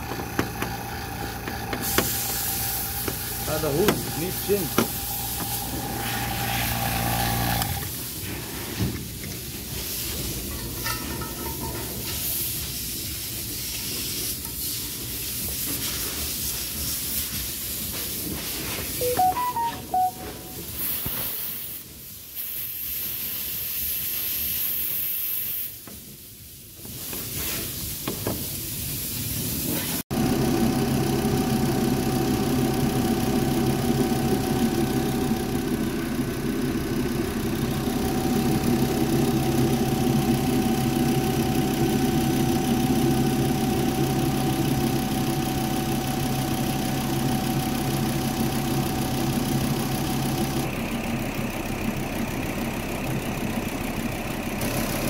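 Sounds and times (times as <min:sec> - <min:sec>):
refrigerant gas hissing through hoses: 0:00.0 - 0:19.0, 0:20.8 - 0:30.0
car engine idling: 0:30.2 - 0:55.0.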